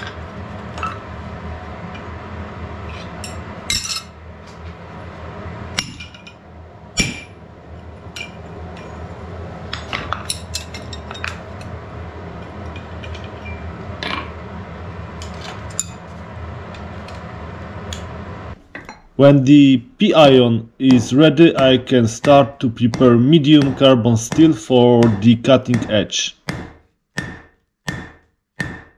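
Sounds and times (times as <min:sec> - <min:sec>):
low hum: 0:00.0 - 0:26.3
metal strikes on anvil: 0:03.2 - 0:04.1, 0:05.8 - 0:06.3, 0:07.0 - 0:07.4, 0:20.9 - 0:28.9.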